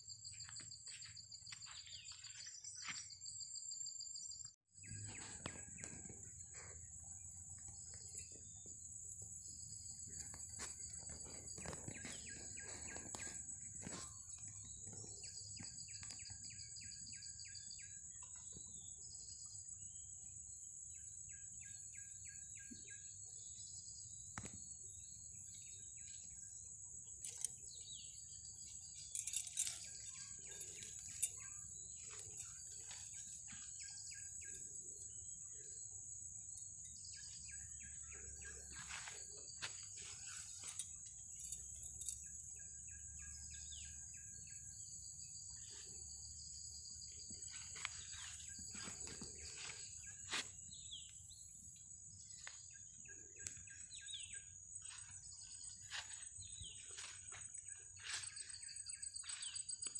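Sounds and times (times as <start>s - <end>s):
birds calling: 4.8s - 17.2s, 27.1s - 44.6s, 45.6s - 51.5s
insects trilling: 5.1s - 18.7s, 23.5s - 59.9s.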